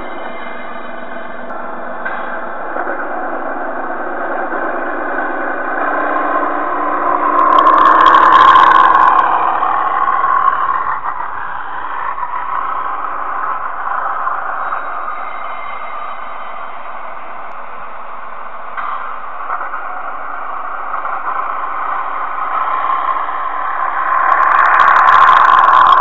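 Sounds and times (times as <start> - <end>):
model train wheel rattle: 4.5 - 15.0, 18.8 - 26.0
model train motor hum: 18.5 - 26.0.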